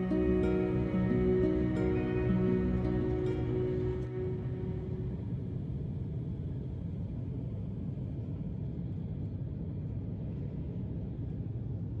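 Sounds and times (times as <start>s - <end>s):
jet engine cabin rumble: 0.0s - 12.0s.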